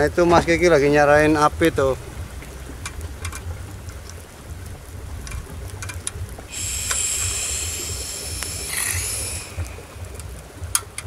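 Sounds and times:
campfire crackling: 0:00.0 - 0:11.0
wind rumbling on microphone: 0:00.0 - 0:11.0
high steady buzz: 0:06.5 - 0:11.0.

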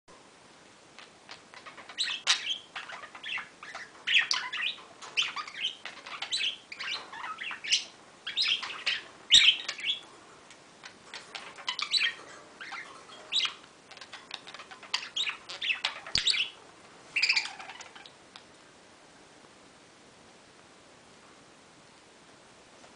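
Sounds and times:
budgerigars warbling and chirping: 0:01.0 - 0:10.1, 0:10.8 - 0:18.2.

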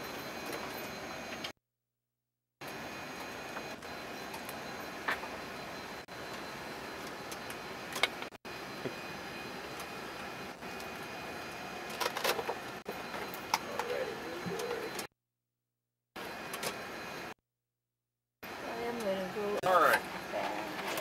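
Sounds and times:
ventilation fans hiss and hum: 0:02.6 - 0:15.1.

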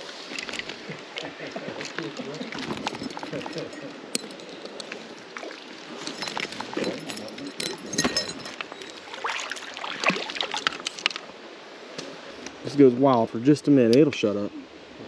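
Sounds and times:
water splashing and sloshing: 0:00.0 - 0:12.8
water dripping: 0:00.2 - 0:11.2.

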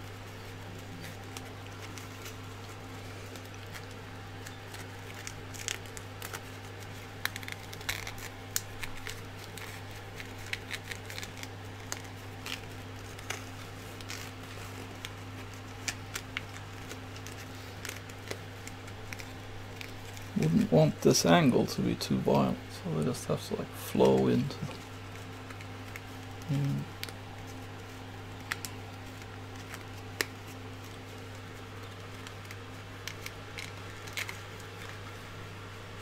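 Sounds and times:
steady low hum: 0:00.0 - 0:36.0
wires clicking and rustling in sleeve: 0:00.0 - 0:36.0.

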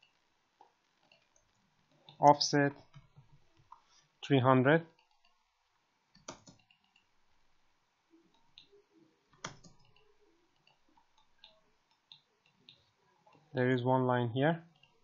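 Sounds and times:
mouse and keyboard clicks: 0:06.2 - 0:07.1, 0:08.3 - 0:12.8.

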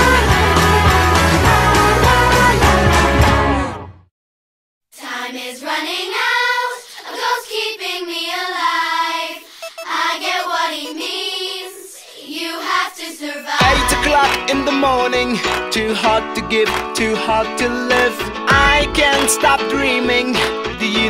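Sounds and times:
voices singing unaccompanied: 0:05.0 - 0:15.4.

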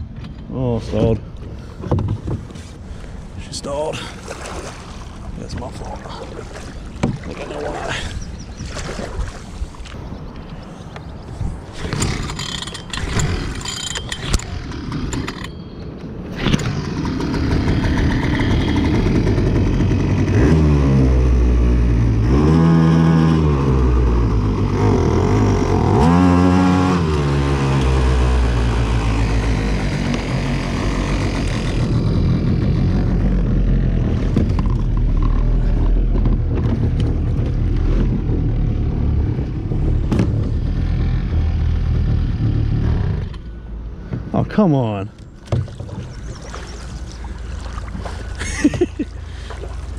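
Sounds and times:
outboard motor revving: 0:03.8 - 0:09.6, 0:11.7 - 0:15.6, 0:16.3 - 0:44.0, 0:45.3 - 0:49.9
outboard motor pull-start: 0:11.7 - 0:26.1, 0:45.2 - 0:49.9.

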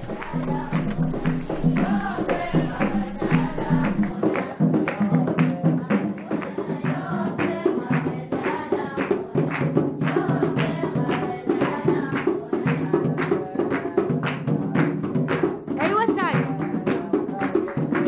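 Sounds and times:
tambourine: 0:00.0 - 0:05.4
person singing: 0:00.0 - 0:06.5
hand drums: 0:00.0 - 0:18.0.

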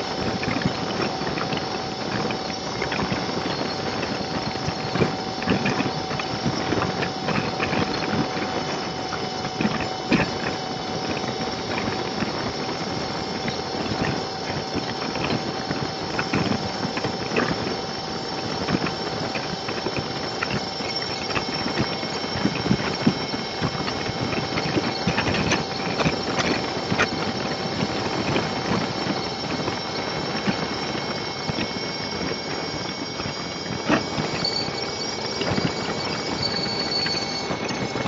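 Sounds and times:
thin high tone: 0:18.8 - 0:38.0.

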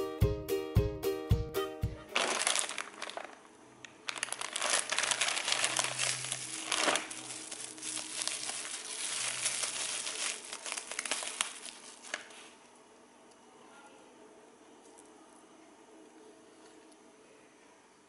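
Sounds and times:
plastic bubble bag crinkling: 0:02.0 - 0:12.6.

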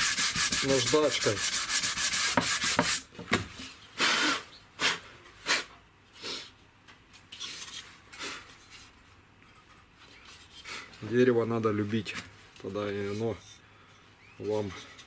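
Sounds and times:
sandpaper rubbing on wood: 0:00.0 - 0:03.0.

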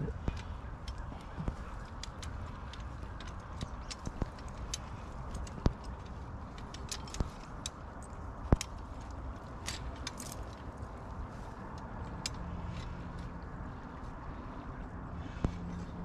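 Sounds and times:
metal trap clicking and clinking: 0:01.8 - 0:10.8.

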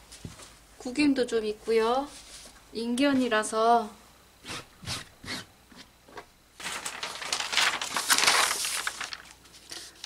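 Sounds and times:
paper sheets rustling and crinkling: 0:06.6 - 0:10.0.

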